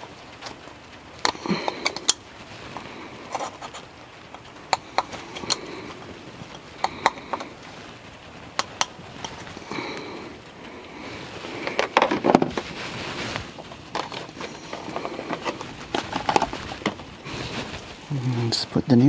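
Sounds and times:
light scraping and rubbing: 1.9 - 8.0, 11.0 - 18.5.

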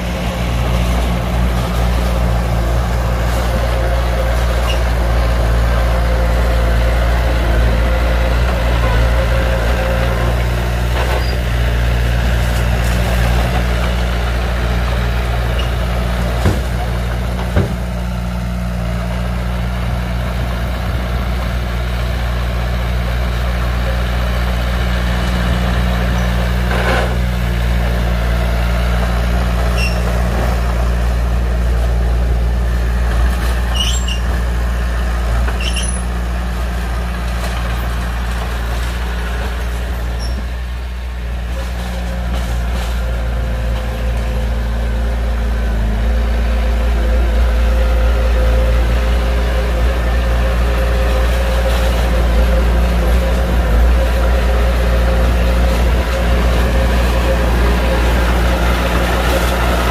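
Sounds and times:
heavy diesel engines running: 0.0 - 59.9
clanks and squeaks: 4.6 - 5.0, 10.9 - 11.5, 15.5 - 15.8, 29.6 - 30.3, 33.5 - 34.5, 35.4 - 36.2, 40.0 - 40.5.

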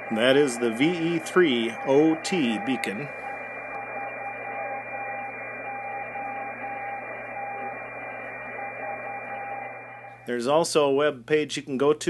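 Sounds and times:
morse code tone: 0.0 - 10.3
steady high tone: 0.0 - 10.5
radio band noise and hiss: 0.0 - 10.6.

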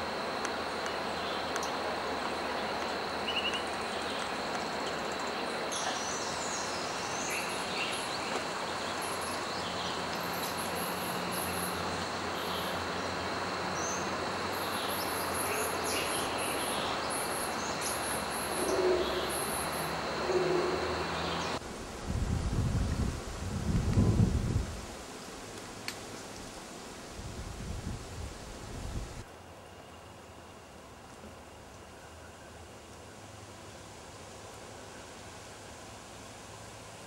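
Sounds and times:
insect drone: 0.0 - 37.0
bird-like notes: 13.8 - 21.6.

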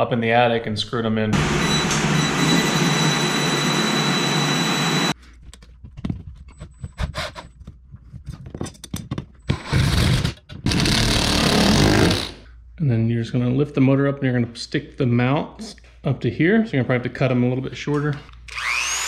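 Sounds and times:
impact driver driving screws: 9.5 - 12.3.

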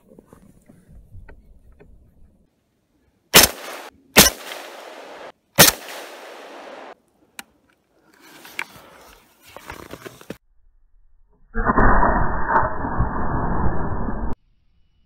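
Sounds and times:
rifle shots: 3.4 - 7.0.

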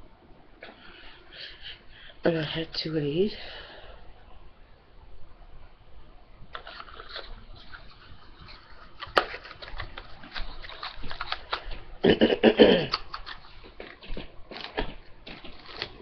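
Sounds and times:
packaging rustling: 6.6 - 11.9, 12.9 - 16.0.

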